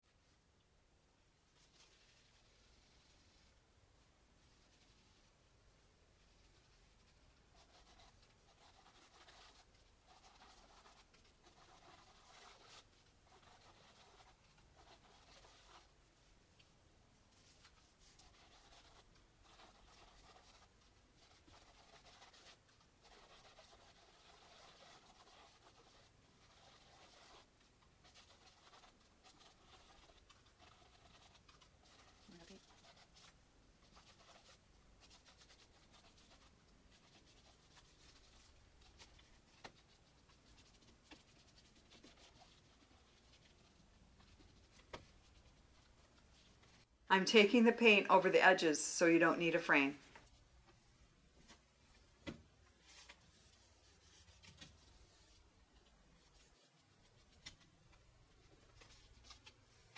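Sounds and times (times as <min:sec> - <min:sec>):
paintbrush brushing on canvas: 0:01.5 - 0:03.6, 0:04.4 - 0:05.4, 0:06.2 - 0:16.3, 0:17.3 - 0:46.9, 0:52.7 - 0:59.9
paintbrush swishing on canvas: 0:01.5 - 0:03.6, 0:52.7 - 0:57.7.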